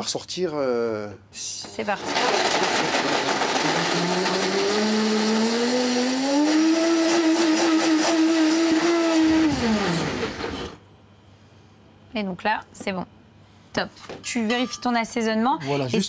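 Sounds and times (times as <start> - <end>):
blender motor whine: 2.0 - 10.8.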